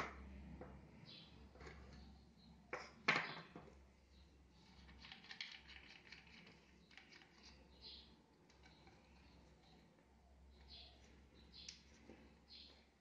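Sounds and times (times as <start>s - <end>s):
plastic tubing clicks and rustles: 4.6s - 7.8s.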